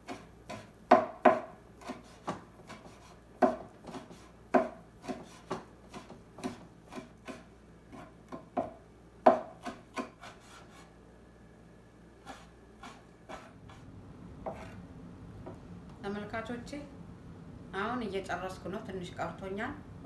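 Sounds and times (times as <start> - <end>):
knife chopping on board: 0.0 - 10.6.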